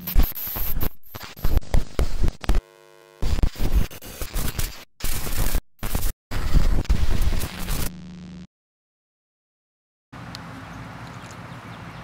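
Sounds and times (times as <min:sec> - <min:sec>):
videotape static and glitch noise: 0:00.0 - 0:08.5
steady buzz: 0:02.2 - 0:04.3, 0:05.8 - 0:08.5.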